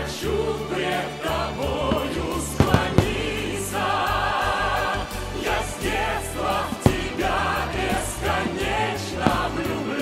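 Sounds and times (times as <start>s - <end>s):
choir singing: 0.0s - 10.0s
firework bang: 1.9s - 4.6s, 6.6s - 9.9s.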